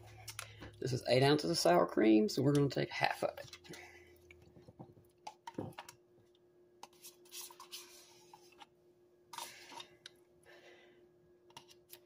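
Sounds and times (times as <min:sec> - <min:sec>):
spoon scraping plastic tub: 0:06.8 - 0:08.7, 0:09.3 - 0:10.2.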